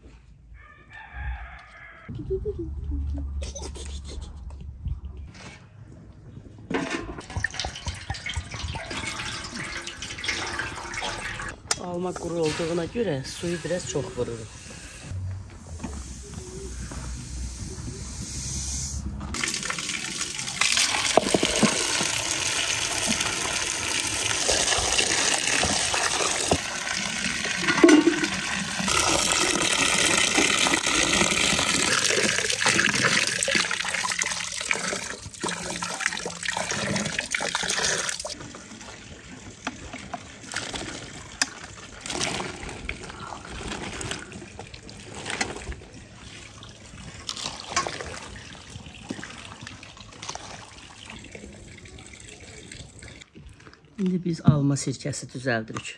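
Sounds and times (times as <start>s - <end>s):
water pouring into metal basin: 7.2s - 15.0s, 19.3s - 53.3s.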